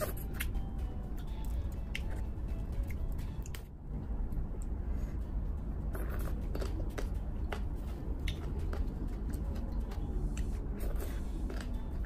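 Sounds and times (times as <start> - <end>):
steady low hum: 0.0 - 12.0
chewing and lip-smacking: 1.2 - 3.7, 5.9 - 12.0.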